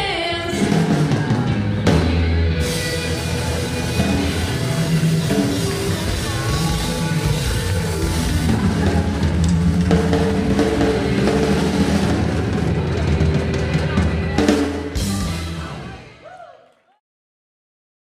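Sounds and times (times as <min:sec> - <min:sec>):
drum kit beat: 0:00.0 - 0:16.1
live band playing country-rock: 0:00.0 - 0:16.1.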